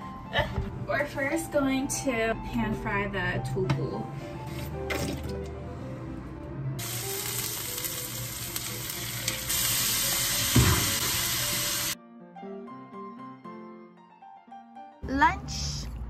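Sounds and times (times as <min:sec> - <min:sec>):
meat and kimchi sizzling in a pan: 0:06.8 - 0:12.0
thump: 0:10.5 - 0:10.9.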